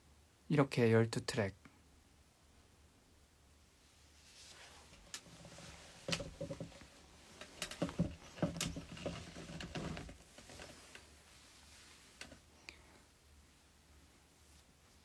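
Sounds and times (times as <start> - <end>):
phone handling clicks and bumps: 6.0 - 10.8.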